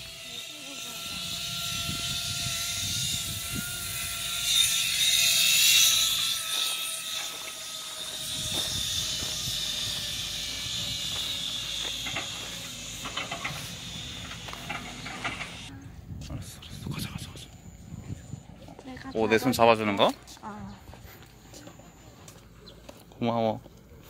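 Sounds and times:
zipline trolley whirring on cable: 0.0s - 15.8s
footsteps on gravel: 5.3s - 15.6s.

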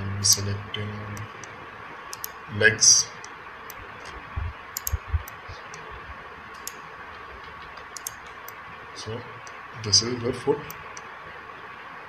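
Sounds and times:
mouse and keyboard clicks: 4.8s - 5.8s, 6.6s - 8.6s.

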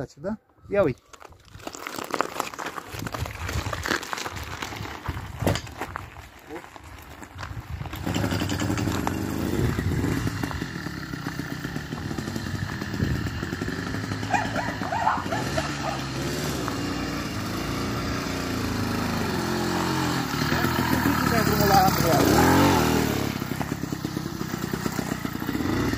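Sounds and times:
two-stroke bicycle engine revving: 7.9s - 25.9s.

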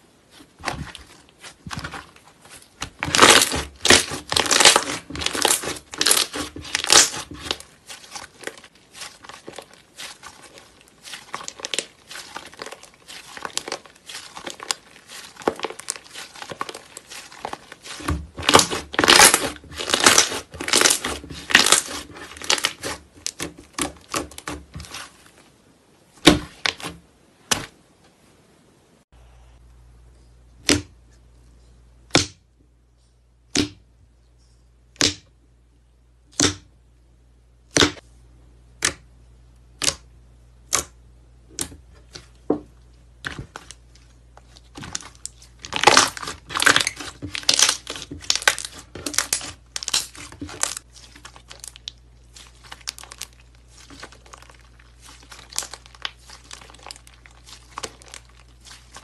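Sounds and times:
slime crackling and popping: 0.6s - 25.1s, 43.2s - 59.0s.

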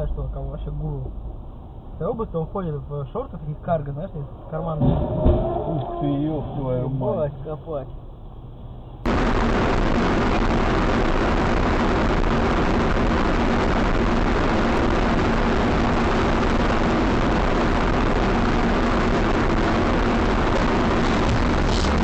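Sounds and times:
faint engine hum: 0.0s - 9.3s, 10.4s - 22.0s
vehicle driving noise: 0.0s - 22.0s.

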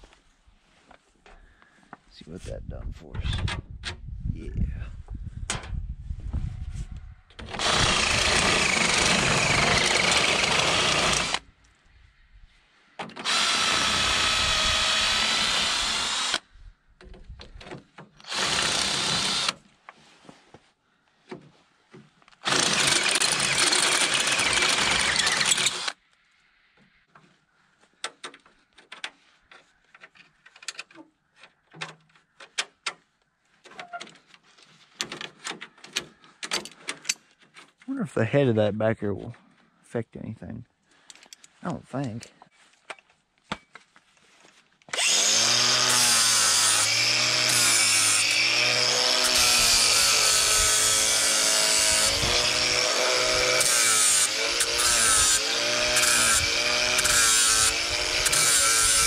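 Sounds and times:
cordless drill boring steel: 7.5s - 11.4s, 13.2s - 16.4s, 18.2s - 19.6s, 22.4s - 26.0s, 44.9s - 59.0s.

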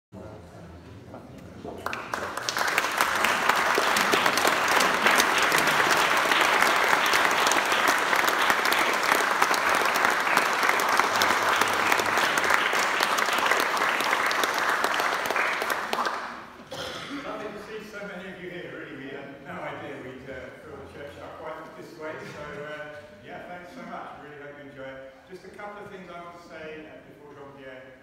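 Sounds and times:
audience applauding: 1.7s - 16.7s.

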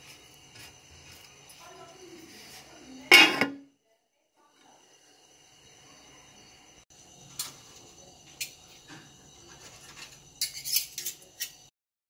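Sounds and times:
metal pot lid clinking: 3.1s - 3.6s
spoon striking a pot: 3.1s - 3.6s.

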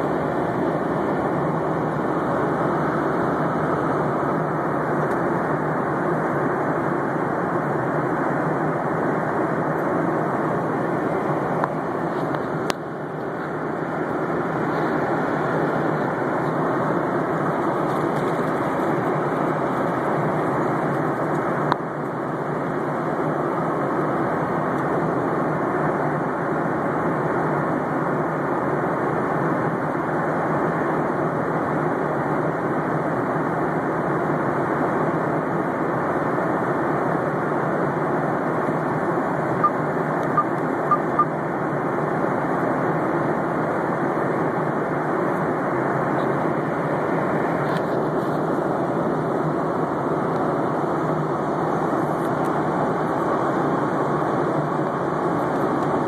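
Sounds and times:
aircraft cabin drone: 0.0s - 56.0s
short beeps: 39.6s - 41.3s.

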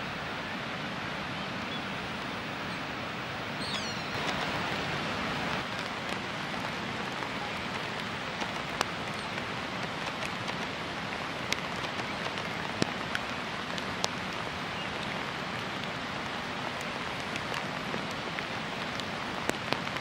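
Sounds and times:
rain falling: 0.0s - 20.0s
raindrop ticks: 5.5s - 20.0s.

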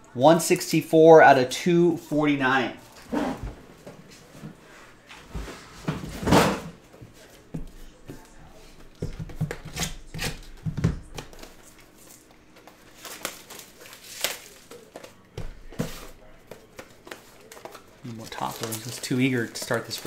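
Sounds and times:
rustling of supplies: 11.3s - 20.0s.

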